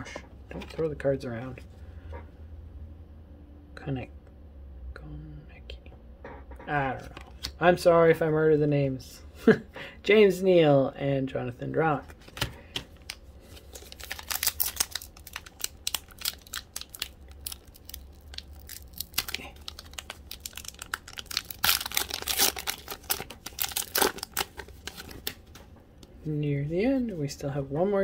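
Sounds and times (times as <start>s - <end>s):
foil wrapper tearing and crinkling: 13.0s - 25.4s.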